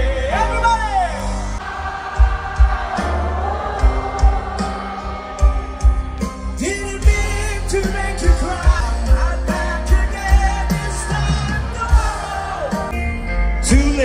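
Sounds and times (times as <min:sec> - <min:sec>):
band playing with singing: 0:00.0 - 0:14.0
bass drum thumping: 0:02.1 - 0:12.7.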